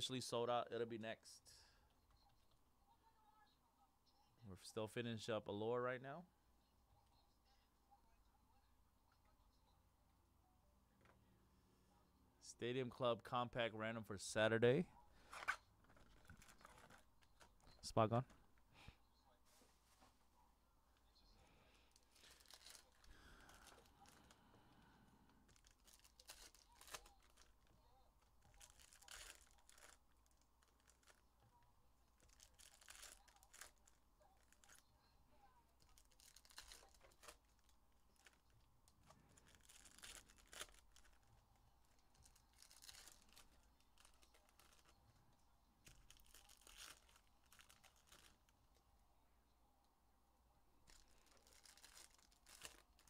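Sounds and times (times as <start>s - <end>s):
faint wrapper tearing and crinkling: 15.3s - 17.6s, 21.9s - 24.4s, 25.4s - 31.3s, 32.1s - 34.9s, 35.8s - 45.0s, 45.8s - 48.6s, 50.8s - 53.0s.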